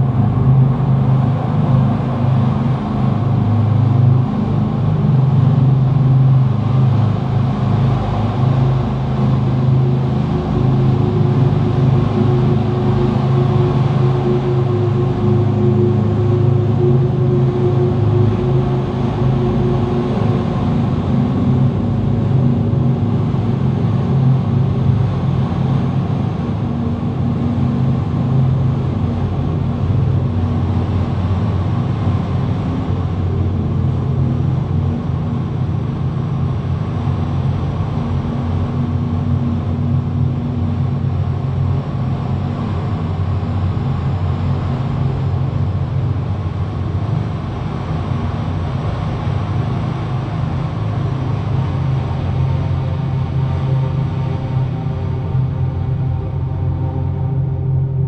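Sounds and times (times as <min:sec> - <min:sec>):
ambient low drone: 0:00.0 - 0:58.0
rumbling haze: 0:00.0 - 0:58.0.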